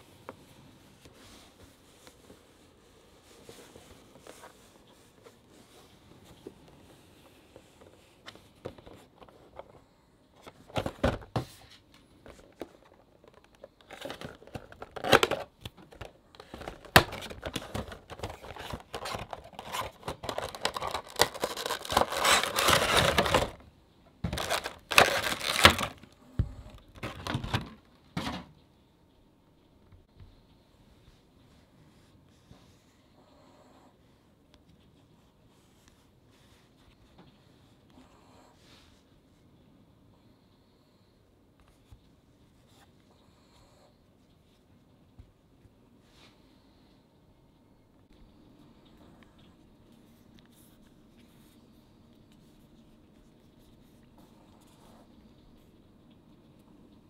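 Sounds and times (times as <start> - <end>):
packaging rustling and crinkling: 10.4 - 27.9.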